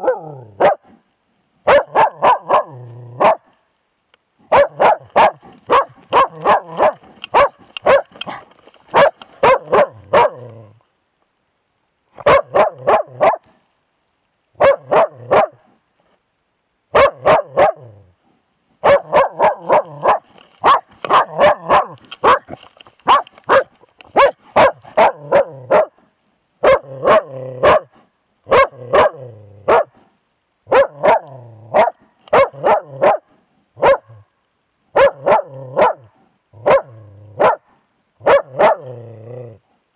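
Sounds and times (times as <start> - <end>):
dog barking: 0.0 - 1.0, 1.6 - 3.5, 4.5 - 10.6, 12.2 - 13.5, 14.6 - 15.7, 16.9 - 18.0, 18.8 - 26.0, 26.6 - 30.0, 30.7 - 34.3, 34.9 - 39.0.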